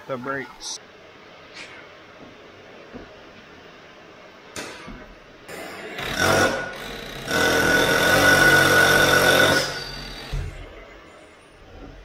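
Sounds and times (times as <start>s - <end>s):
power tool whining: 6.0s - 10.5s.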